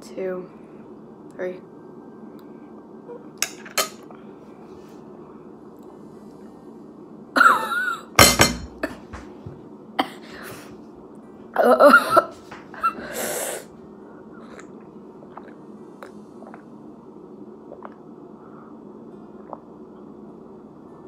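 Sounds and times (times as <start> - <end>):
woman coughing: 7.4 - 9.1, 10.0 - 10.3, 11.6 - 13.2
breath hissing out: 13.0 - 13.7.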